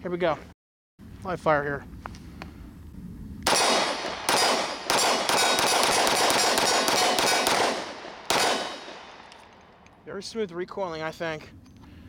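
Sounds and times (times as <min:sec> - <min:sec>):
pistol shots with echoes: 0:03.5 - 0:09.9.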